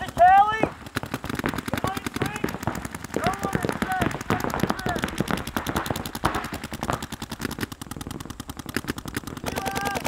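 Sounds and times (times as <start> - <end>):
paintball guns firing: 0.0 - 10.0.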